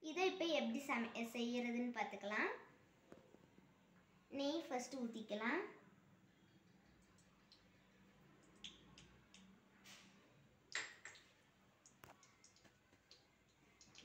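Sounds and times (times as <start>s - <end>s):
small clicks and ticks: 6.6s - 7.8s, 8.4s - 9.6s, 10.7s - 14.0s.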